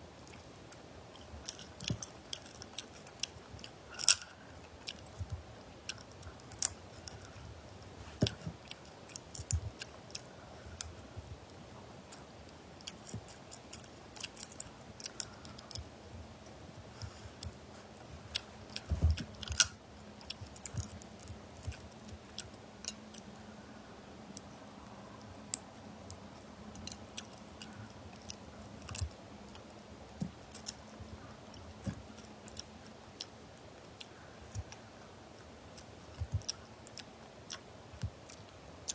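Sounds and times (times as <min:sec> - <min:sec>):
soft chewing: 0:00.0 - 0:38.9
crayfish shells cracking: 0:01.2 - 0:05.2, 0:19.2 - 0:19.8.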